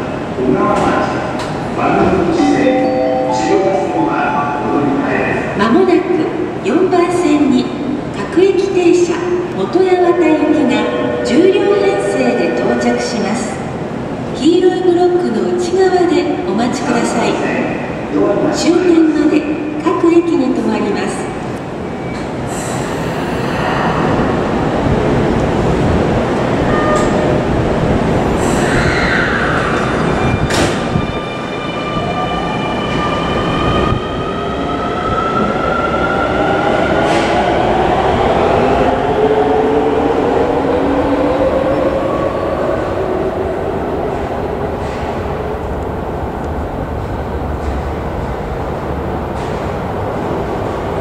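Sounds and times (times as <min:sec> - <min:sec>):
subway train wheels rumbling: 0:00.0 - 0:51.0.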